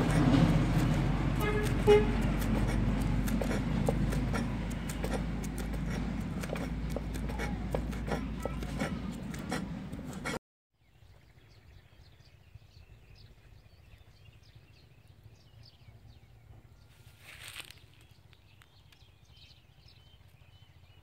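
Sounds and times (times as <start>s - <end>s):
knife chopping on wooden board: 0.0s - 10.4s.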